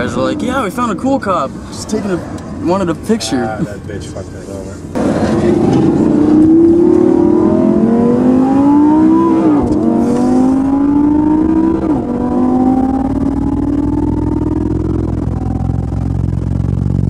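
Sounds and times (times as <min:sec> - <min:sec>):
car engine accelerating hard: 0:04.9 - 0:17.0.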